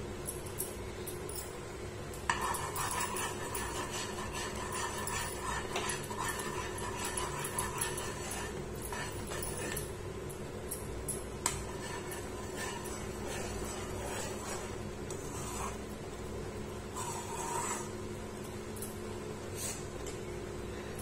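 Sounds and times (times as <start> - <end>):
steady low hum: 0.0 - 21.0
metal spatula scraping a pan: 11.7 - 15.8, 17.0 - 18.0.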